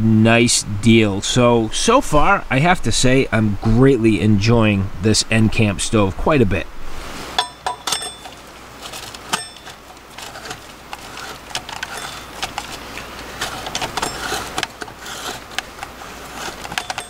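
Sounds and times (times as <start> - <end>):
metal threads scraping: 7.3 - 17.0
ringing metal clinks: 7.4 - 8.5, 9.3 - 10.0
small metallic clicks: 7.4 - 17.0.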